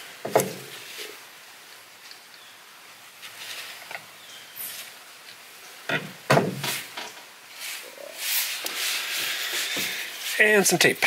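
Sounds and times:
rustling: 0.0 - 11.0
sharp knocks: 5.9 - 7.1.

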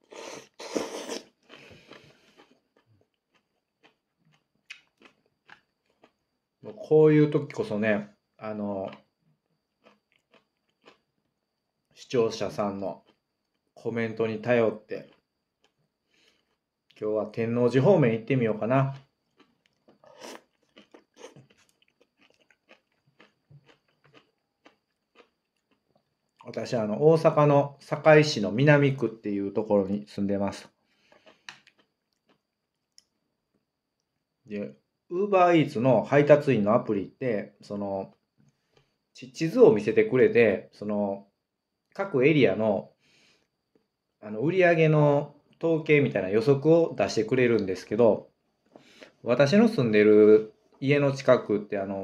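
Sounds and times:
man slurping noodles: 0.0 - 1.3
quiet chewing: 0.0 - 6.9, 8.8 - 12.0, 12.9 - 13.8, 15.0 - 17.0, 18.9 - 26.6, 30.9 - 34.3, 38.0 - 39.0.

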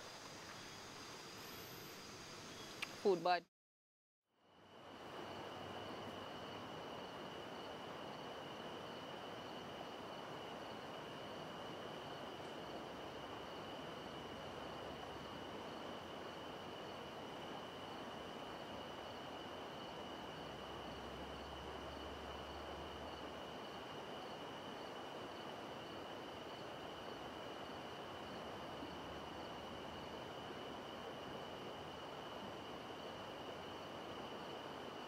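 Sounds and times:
even hiss: 0.0 - 3.4
insects chirring: 0.0 - 3.4, 4.4 - 35.0.

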